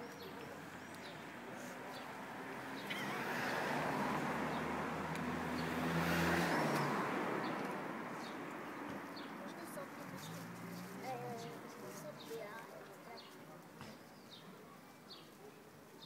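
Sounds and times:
small birds chirping: 0.0 - 3.2, 5.5 - 16.0
car driving past: 2.4 - 8.1.

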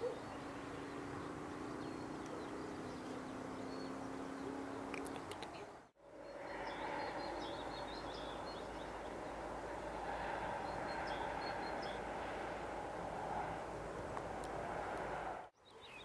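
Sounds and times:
small birds chirping: 0.0 - 12.3, 15.6 - 16.0.

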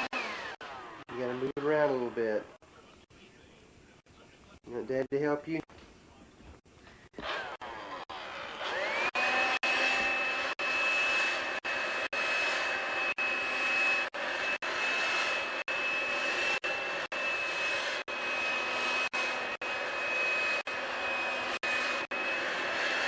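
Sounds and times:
vacuum cleaner running: 0.0 - 2.6, 7.1 - 23.0.

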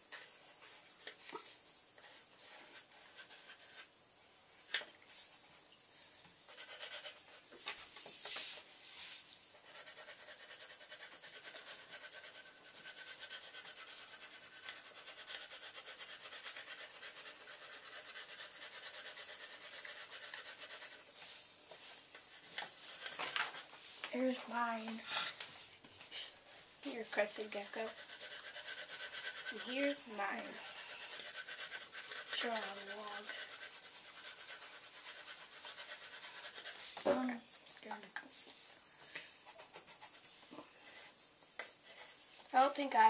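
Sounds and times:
pencil scratching on paper: 2.0 - 4.0, 6.4 - 25.4, 26.8 - 37.2, 39.1 - 43.0.

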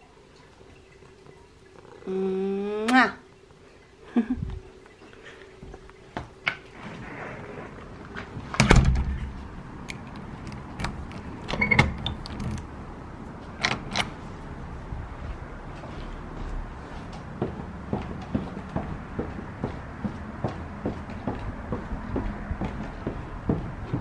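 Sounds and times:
door lock metallic clicks and clunks: 8.6 - 9.3, 9.9 - 12.7, 13.6 - 14.1.

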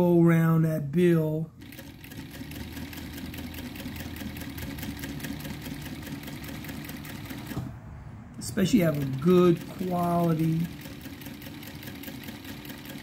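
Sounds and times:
sewing machine motor hum: 1.5 - 7.8, 8.4 - 13.0
sewing needle strokes: 1.6 - 7.6, 8.6 - 13.0.

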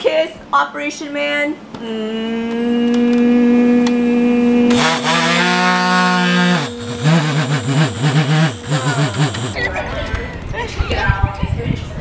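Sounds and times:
electric game buzzer: 4.7 - 9.6.

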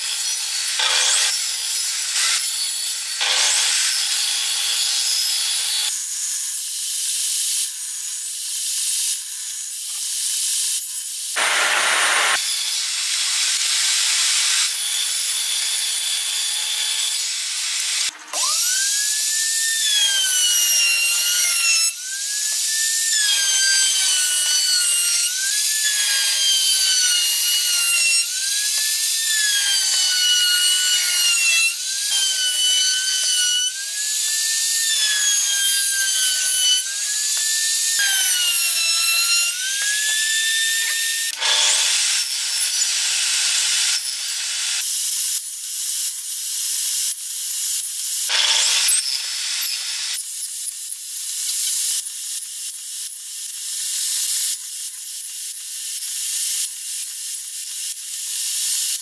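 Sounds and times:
power tool motor whining: 0.0 - 5.9, 11.4 - 44.8, 48.2 - 50.2.

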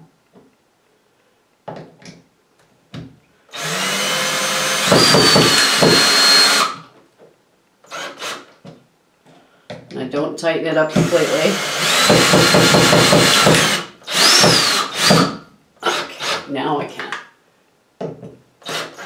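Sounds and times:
cordless drill driving screw: 3.5 - 6.8, 10.9 - 15.3, 18.6 - 19.0.

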